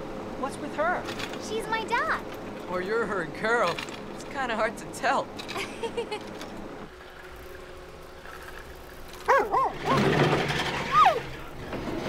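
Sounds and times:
dog yelp: 9.2 - 10.1
cartoon dog barking: 9.3 - 10.0.

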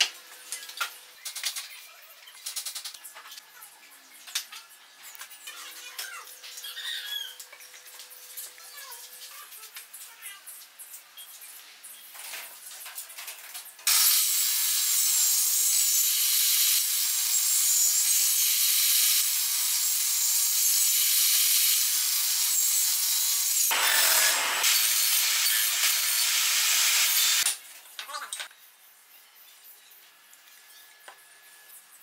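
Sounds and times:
table saw cutting wood: 13.9 - 27.6.

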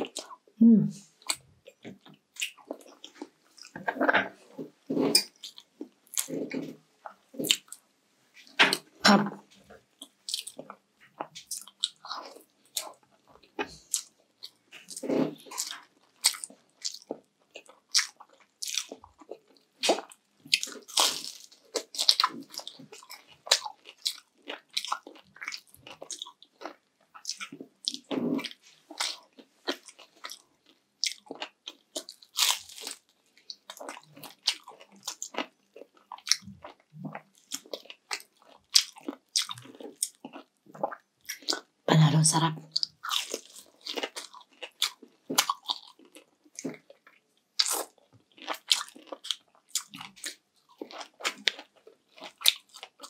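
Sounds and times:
person chewing crunchy food: 0.0 - 0.5, 1.1 - 7.8, 8.4 - 41.8, 42.6 - 53.0
mouth sounds: 0.6 - 1.1.

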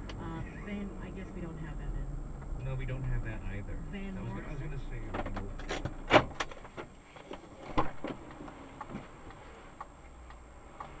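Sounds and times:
low steady hum: 0.0 - 5.7
clicks and knocks in car cabin: 5.1 - 11.0.

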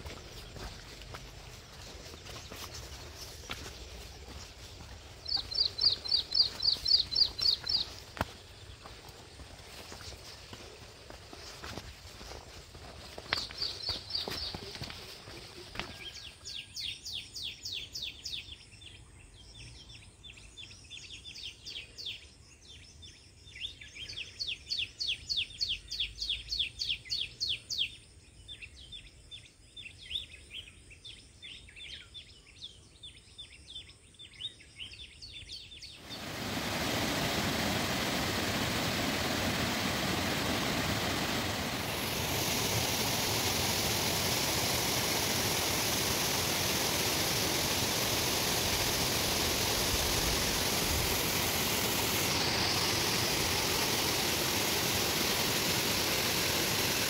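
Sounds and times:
birds chirping: 0.0 - 27.3, 31.9 - 57.0
waterfall rushing: 36.0 - 57.0.

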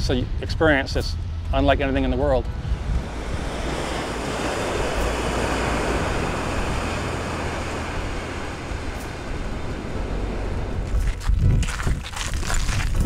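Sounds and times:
surf breaking on rocky shore: 2.7 - 12.9.

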